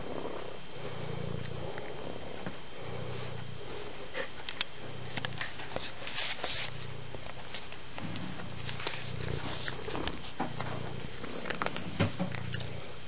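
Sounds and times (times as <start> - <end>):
cat purring: 0.0 - 13.0
cat chewing and lapping: 3.9 - 12.9.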